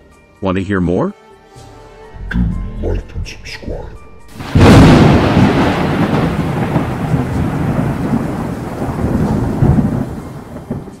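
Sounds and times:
rain: 4.3 - 11.0
rolling thunder: 4.3 - 11.0.

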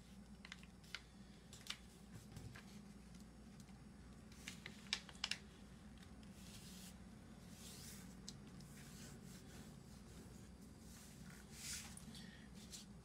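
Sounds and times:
paper crackling: 4.3 - 5.5.

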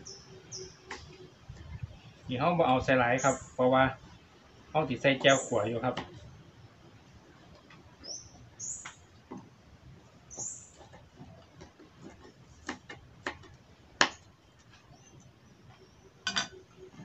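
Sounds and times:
bird chirping: 0.0 - 4.1, 4.8 - 5.9, 8.0 - 9.1, 10.2 - 11.0.

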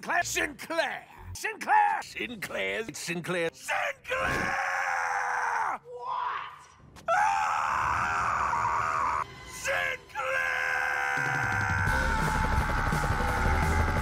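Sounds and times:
cartoon man screaming in rage: 4.1 - 6.5, 7.1 - 14.0.

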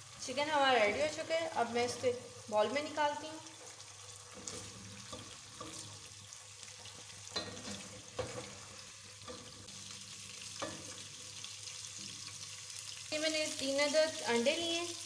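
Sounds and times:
food sizzling in oil: 0.0 - 15.0
spatula knocking and scraping pan: 4.3 - 6.2, 6.8 - 9.7, 10.5 - 11.1.

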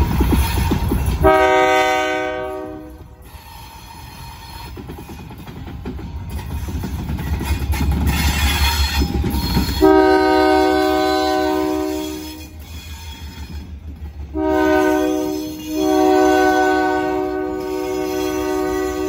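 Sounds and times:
locomotive air horn blasts: 1.2 - 4.3, 9.7 - 12.6, 14.4 - 19.0.

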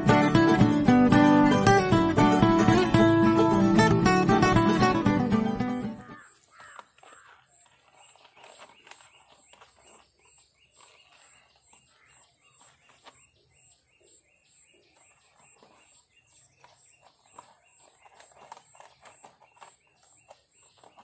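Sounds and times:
bird chirps: 5.8 - 21.0
plastic bird feeder clicks and rustles: 6.1 - 13.3.

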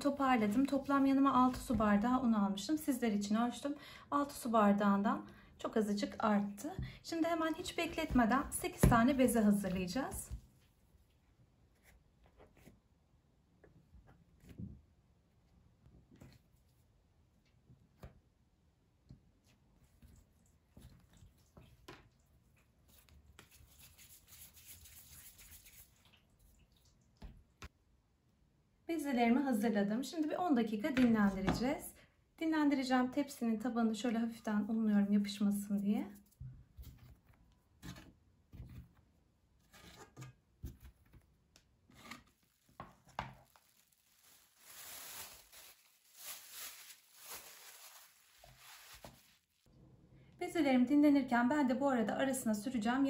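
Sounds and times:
plastic bag crinkling: 42.4 - 49.6.

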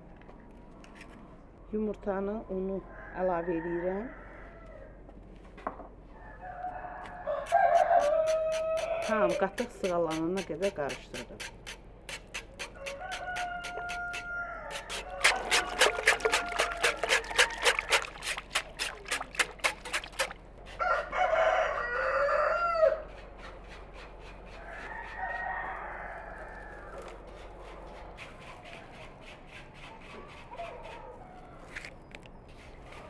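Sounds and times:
whisk clicking in metal pot: 14.9 - 20.4
dry twigs crackling: 15.0 - 20.4.

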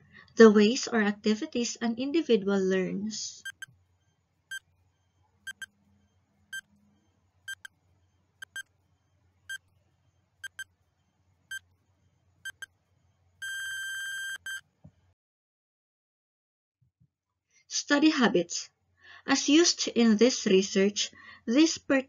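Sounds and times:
countdown timer beeping: 3.5 - 3.7, 5.5 - 5.7, 10.4 - 10.6.

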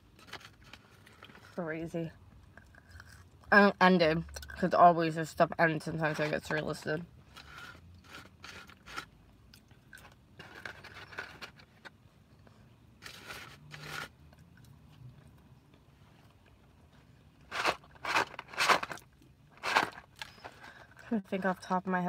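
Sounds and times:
chewing and crunching: 2.4 - 3.5, 7.4 - 20.8
loud sharp crunches: 17.5 - 20.4.

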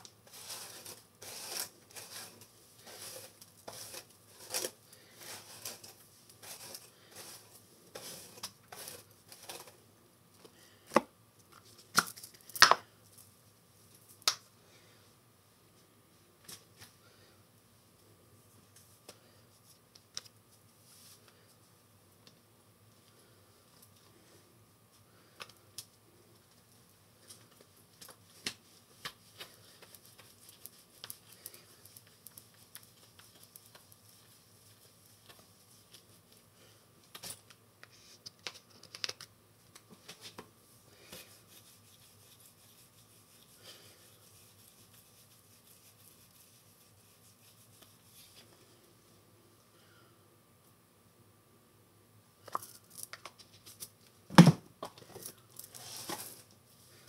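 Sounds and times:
small objects clicking and tapping: 38.2 - 39.9, 52.4 - 53.9.

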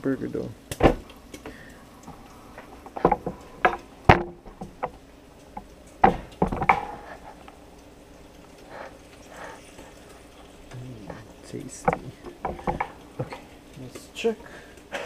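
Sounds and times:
faint steady background noise: 0.0 - 15.0
handling knocks and clatters: 2.6 - 7.4, 10.7 - 14.4.

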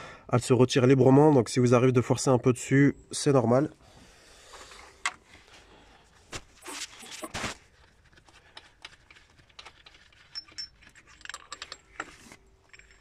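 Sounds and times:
metal tools clinking: 9.1 - 13.0
metallic rings: 10.2 - 13.0.

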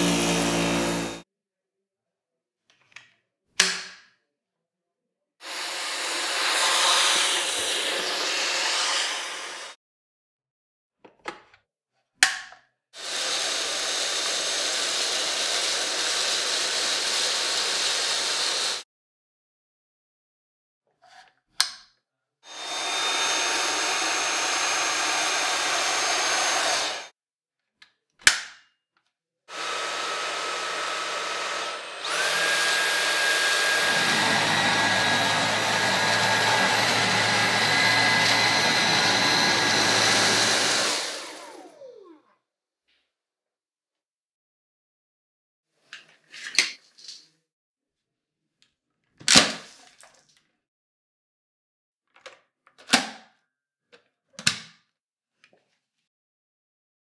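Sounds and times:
vacuum motor running: 0.0 - 1.2, 22.5 - 27.1, 29.5 - 42.2.

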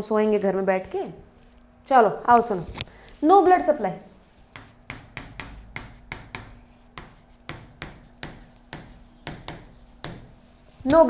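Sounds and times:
chalk tapping and scraping on blackboard: 3.2 - 11.0.

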